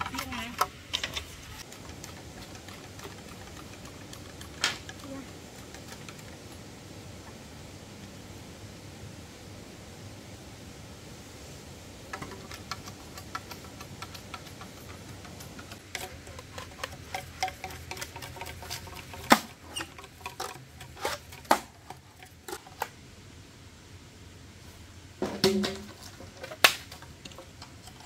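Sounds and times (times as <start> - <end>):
small clicks and light knocks: 12.1 - 22.9
sharp crack: 25.4 - 27.4.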